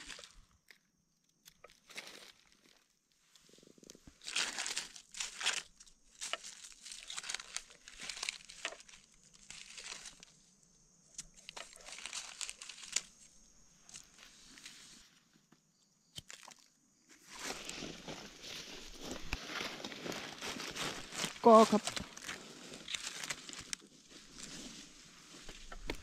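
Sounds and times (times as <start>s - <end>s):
dry leaves crackling and rustling: 1.8s - 2.8s, 4.2s - 10.4s, 11.1s - 15.0s, 17.4s - 26.0s.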